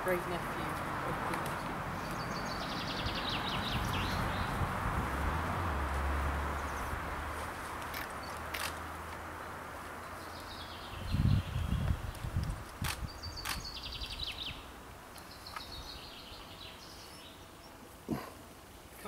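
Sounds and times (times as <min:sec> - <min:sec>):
small birds trilling: 0:01.5 - 0:04.6, 0:10.0 - 0:17.8
sharp clicks: 0:07.8 - 0:09.2, 0:12.1 - 0:13.8.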